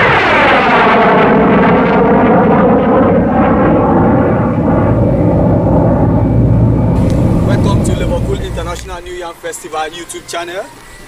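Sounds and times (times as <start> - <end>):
rushing tone with falling pitch: 3.6 - 9.4.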